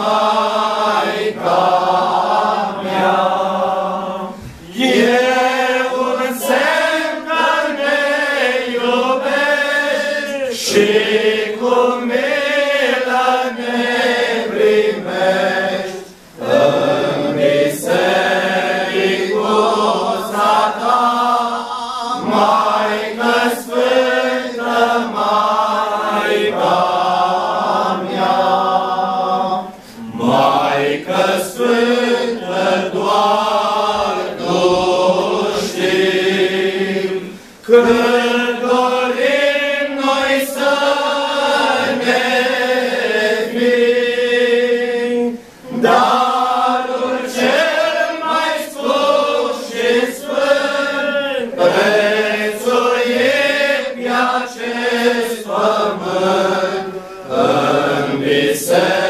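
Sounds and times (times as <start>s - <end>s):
men's choir singing a hymn: 0.0s - 59.0s.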